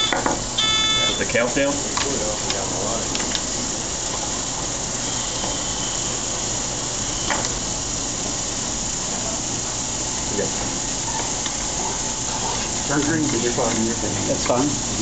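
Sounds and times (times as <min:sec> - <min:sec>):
faint high whine: 0:00.0 - 0:03.8, 0:04.4 - 0:09.5
steady hiss: 0:00.0 - 0:15.0.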